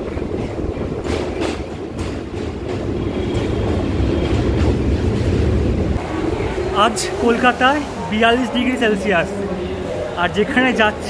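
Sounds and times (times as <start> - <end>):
wheels clacking over rail joints: 0.0 - 7.9
train rumbling on rails: 0.0 - 11.0.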